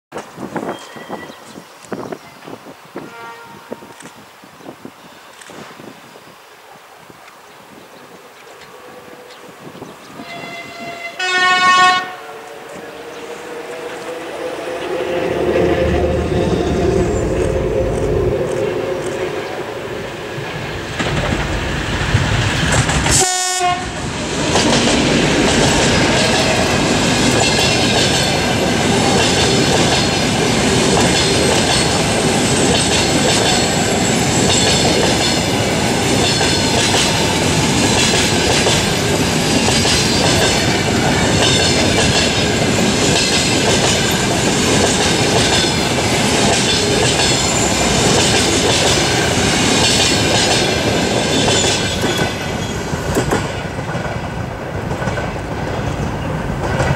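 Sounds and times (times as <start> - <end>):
diesel locomotive passing: 8.6 - 56.9
train wheels clacking over rail joints: 20.4 - 56.9.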